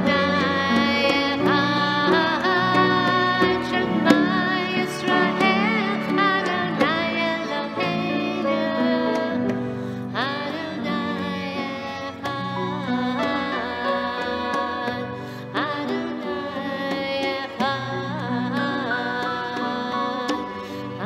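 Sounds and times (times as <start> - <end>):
sustained instrumental accompaniment: 0.0 - 21.0
woman singing with vibrato: 0.0 - 21.0
conga drum taps: 12.2 - 20.9.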